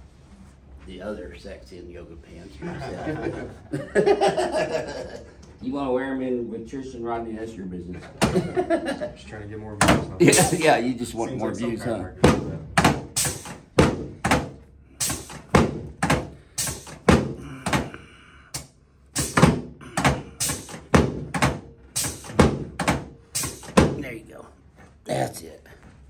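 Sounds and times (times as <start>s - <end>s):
dull thuds on padded table: 13.7s - 14.6s, 15.5s - 16.4s, 17.0s - 17.9s, 19.3s - 20.3s, 20.9s - 21.6s, 22.4s - 23.1s, 23.7s - 24.0s.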